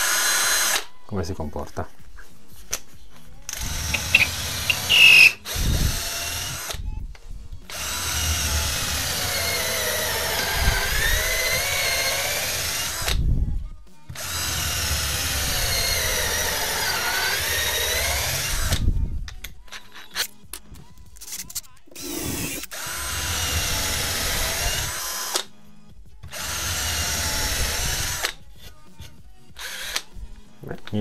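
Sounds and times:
cordless drill drilling into wood: 0:00.0 - 0:00.9, 0:03.5 - 0:06.8, 0:07.7 - 0:13.2, 0:14.2 - 0:18.8, 0:22.0 - 0:25.4, 0:26.3 - 0:28.4, 0:29.6 - 0:30.1.

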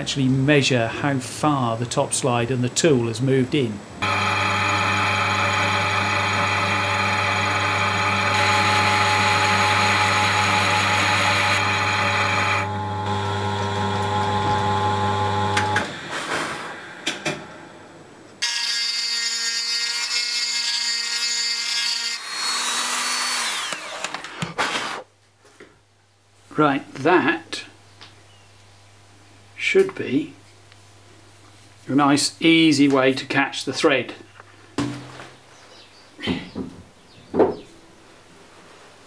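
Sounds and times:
lathe running: 0:04.0 - 0:16.0, 0:22.3 - 0:24.0
boring bar cutting metal: 0:04.0 - 0:16.7, 0:18.4 - 0:25.0
knocks: 0:36.2 - 0:37.6.

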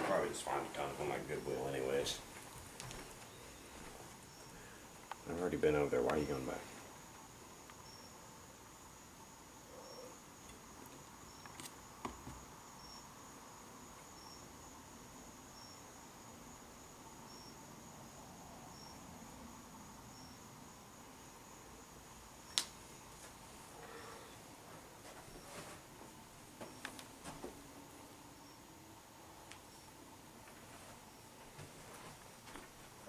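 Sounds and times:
cricket chirping: 0:00.0 - 0:33.0
faint high whine: 0:00.0 - 0:33.0.

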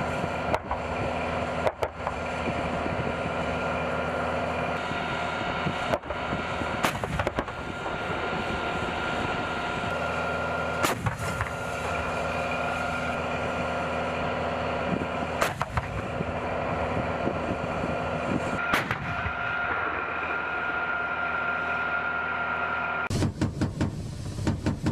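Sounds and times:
vehicle engines droning: 0:00.0 - 0:24.9
howitzer firing: 0:05.8 - 0:08.0, 0:10.8 - 0:12.3, 0:18.6 - 0:19.4.

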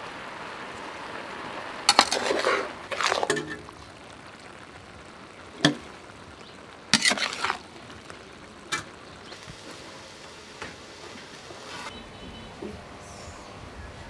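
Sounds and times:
low steady sizzle: 0:00.0 - 0:14.0
utensils scraping a steel wok: 0:01.9 - 0:03.6, 0:07.0 - 0:07.6.

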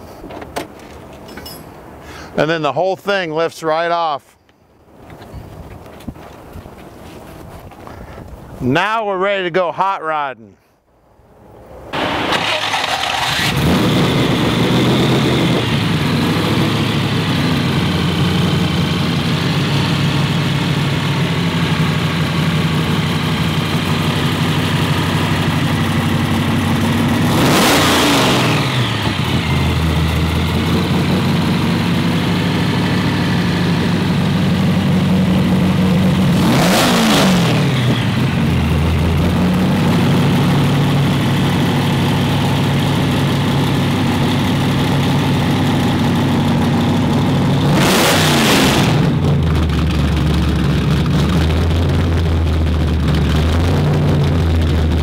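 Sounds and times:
vee eight engine idling and revving: 0:12.0 - 0:55.0.

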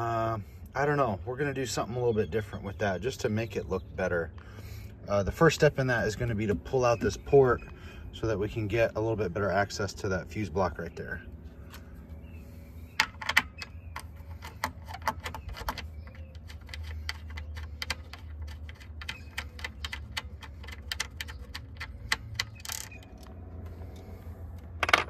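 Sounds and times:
low hum: 0:04.0 - 0:19.3, 0:21.6 - 0:25.0
hex key clicking in screws: 0:14.3 - 0:23.4.

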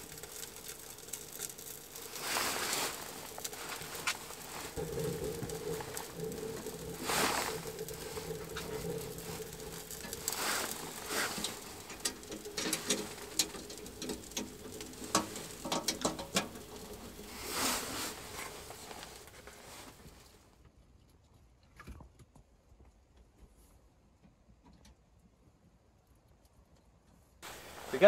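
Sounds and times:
fire rushing swells: 0:00.0 - 0:20.3, 0:27.4 - 0:28.0
wood fire crackling in stove: 0:00.0 - 0:20.7, 0:24.0 - 0:28.0.

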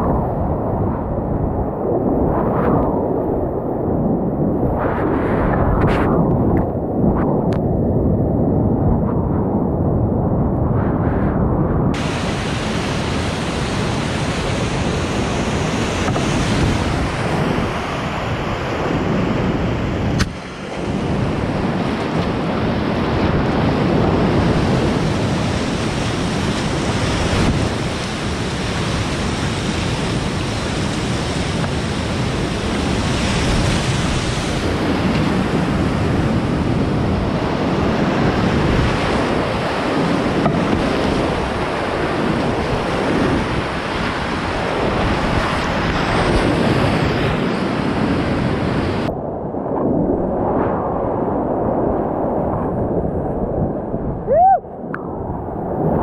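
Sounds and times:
whitewater rapids rushing: 0:12.0 - 0:18.2.

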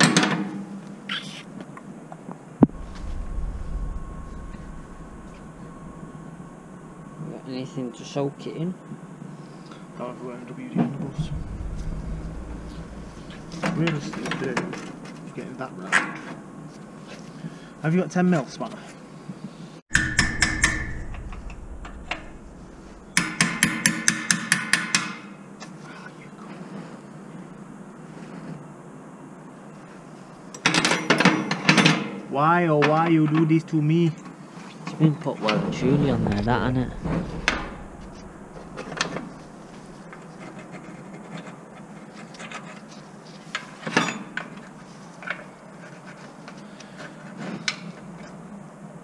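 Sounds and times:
sharp metal knock: 0:19.9 - 0:24.7.

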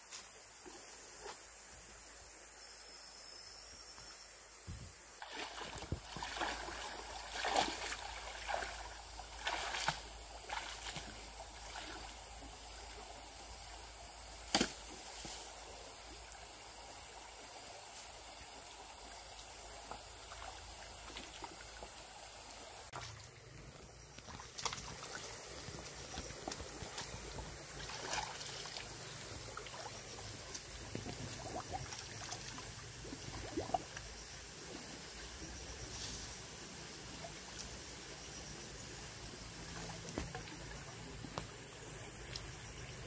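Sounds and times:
knocks and splashes: 0:05.2 - 0:12.1, 0:14.5 - 0:15.1, 0:24.3 - 0:29.0, 0:39.7 - 0:41.6
stream water trickling: 0:05.2 - 0:43.0.

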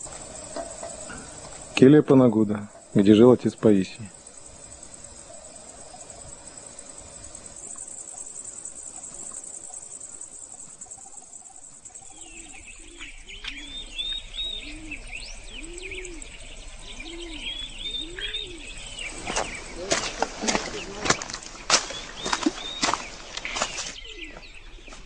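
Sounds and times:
dove cooing: 0:00.0 - 0:01.8, 0:04.1 - 0:21.3
insects chorus: 0:00.0 - 0:25.0
small birds chirping: 0:00.0 - 0:25.0.

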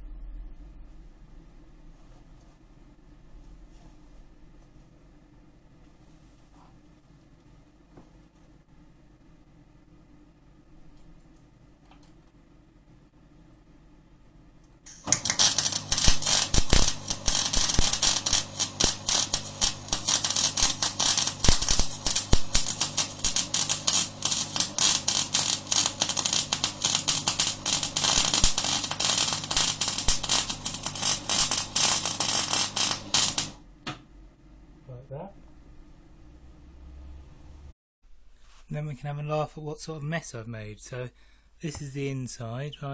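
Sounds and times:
welding arc crackling: 0:14.9 - 0:33.6.

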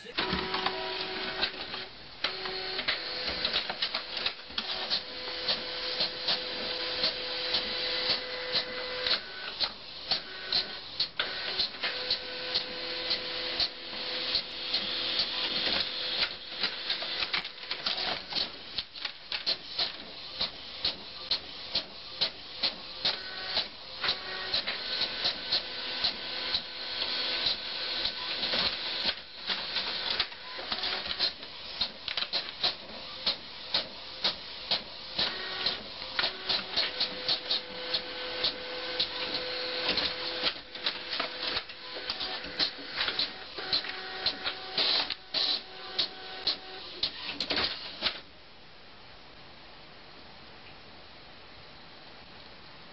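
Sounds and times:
printer motor whirring: 0:00.0 - 0:48.2
printer mechanical clicks: 0:27.4 - 0:48.2.

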